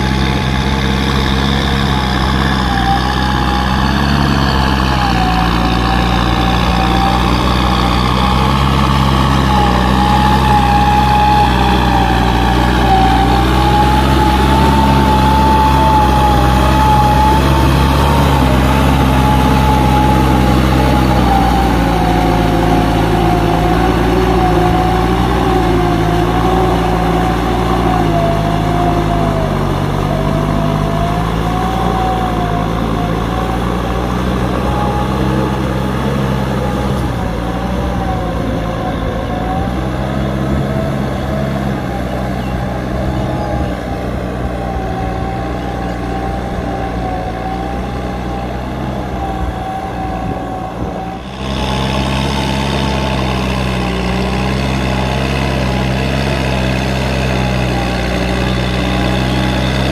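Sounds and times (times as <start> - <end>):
tractor diesel engine running: 0.0 - 59.9
wavering whine: 0.0 - 59.9.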